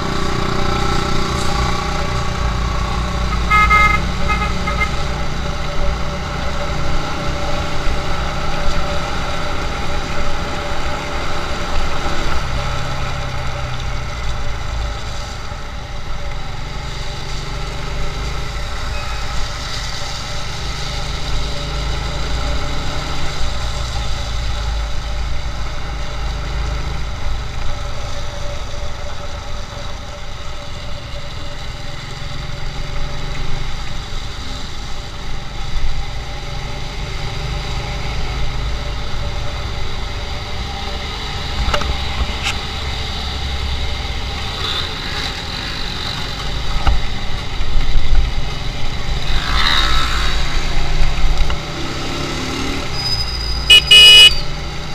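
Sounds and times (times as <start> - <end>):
vehicle horn: 3.2 - 5.1, 53.7 - 54.5.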